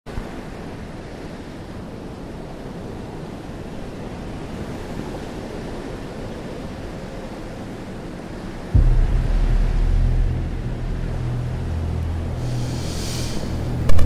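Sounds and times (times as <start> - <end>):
wind: 0.1 - 14.0
waves rushing: 8.1 - 14.0.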